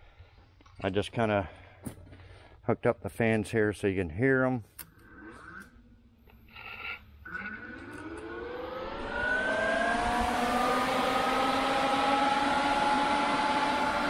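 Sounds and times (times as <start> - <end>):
radiator fan motor whine: 7.4 - 14.0.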